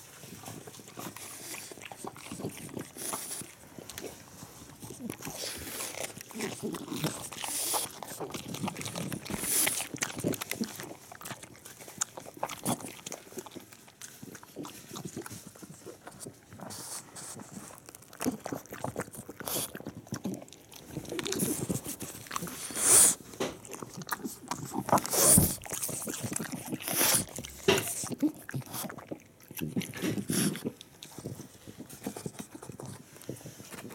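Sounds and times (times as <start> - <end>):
dog chewing cabbage crunches: 0.0 - 33.9
dog snuffling: 14.8 - 18.6, 21.0 - 23.3, 24.1 - 28.9.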